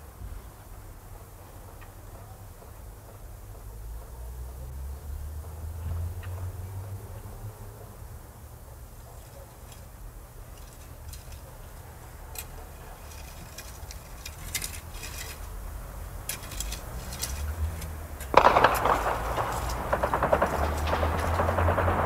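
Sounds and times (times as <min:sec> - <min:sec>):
faint clicks and clinks: 0:09.0 - 0:21.7
low hum: 0:13.4 - 0:22.0
rapid automatic gunfire: 0:18.3 - 0:22.0.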